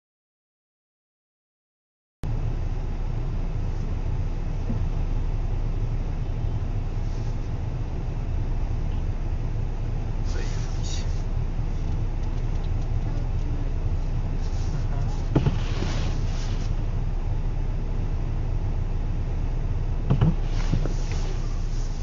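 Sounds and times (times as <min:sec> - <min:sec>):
car engine idling: 0:02.2 - 0:22.0.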